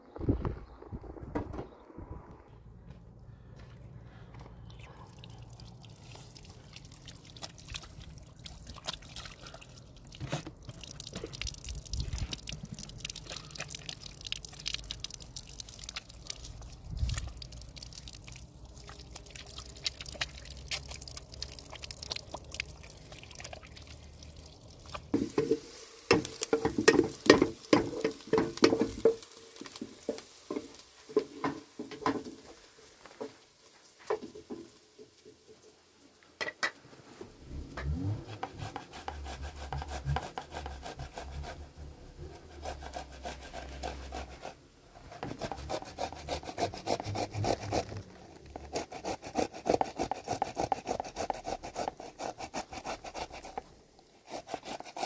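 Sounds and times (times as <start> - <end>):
tomatoes grated on a grater: 38.1 - 41.6, 42.4 - 48.0.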